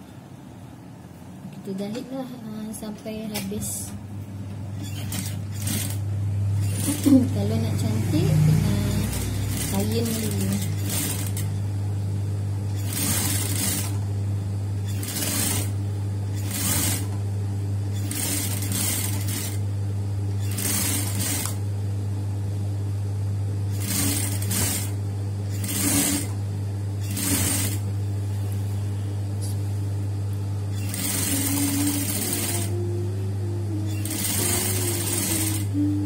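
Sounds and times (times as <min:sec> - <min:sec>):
sewing machine motor humming: 0:04.7 - 0:11.6, 0:12.7 - 0:14.1, 0:14.8 - 0:17.2, 0:17.9 - 0:19.6, 0:20.3 - 0:21.6, 0:23.7 - 0:26.4, 0:27.0 - 0:27.9, 0:30.7 - 0:36.0
sewing machine stitching: 0:04.8 - 0:06.0, 0:06.6 - 0:07.4, 0:08.5 - 0:11.5, 0:12.8 - 0:14.0, 0:14.9 - 0:15.7, 0:16.3 - 0:17.2, 0:17.9 - 0:19.6, 0:20.4 - 0:21.6, 0:23.7 - 0:26.4, 0:27.0 - 0:27.8, 0:30.8 - 0:32.8, 0:33.9 - 0:35.8.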